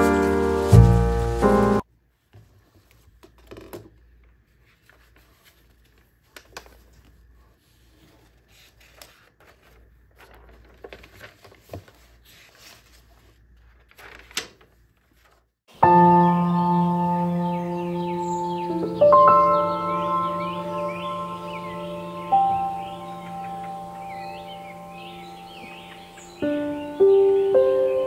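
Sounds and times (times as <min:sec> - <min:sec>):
intro music: 0:00.0 - 0:01.8, 0:15.8 - 0:28.0
pages turned by hand: 0:00.0 - 0:15.5
paper pages rustling: 0:00.0 - 0:15.6.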